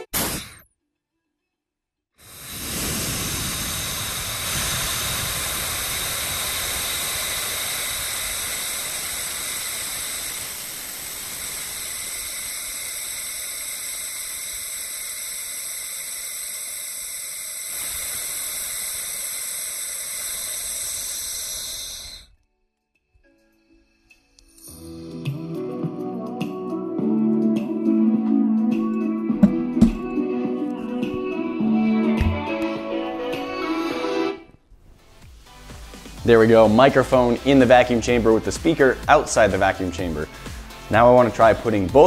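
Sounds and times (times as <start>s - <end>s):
air hissing into vacuum chamber: 0.0s - 0.6s, 2.2s - 22.4s, 24.1s - 26.2s, 35.2s - 42.0s.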